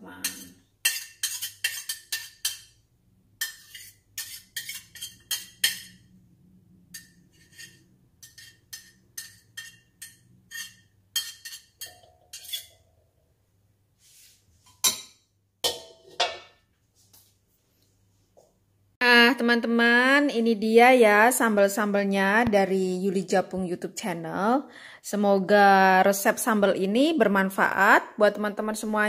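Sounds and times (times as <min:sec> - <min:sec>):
spatula clattering into wok: 0:14.7 - 0:16.6.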